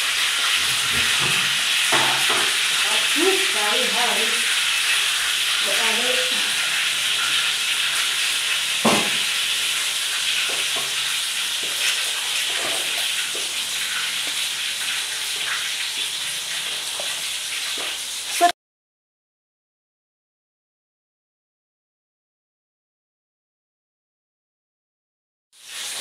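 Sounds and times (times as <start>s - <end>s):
oil frying sizzle: 0.0s - 18.6s, 25.6s - 26.0s
sharp knock: 8.8s - 9.3s.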